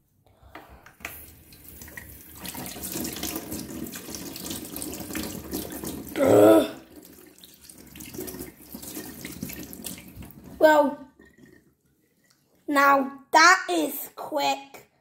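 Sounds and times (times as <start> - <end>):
hands rinsing under water: 6.9 - 12.6.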